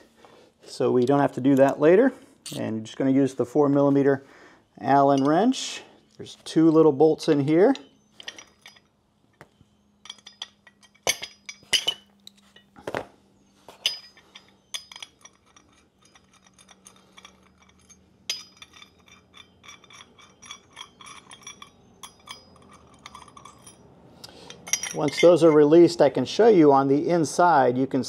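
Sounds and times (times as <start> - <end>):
allen key clicking on metal bolts: 13.9 - 25.5.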